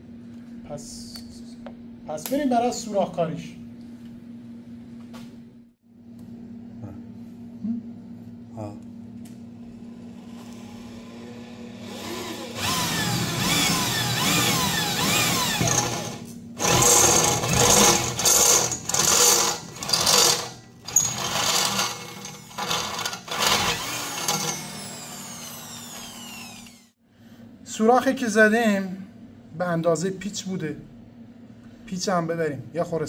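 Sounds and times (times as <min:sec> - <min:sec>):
electric drill boring into metal: 0:10.4 - 0:27.0.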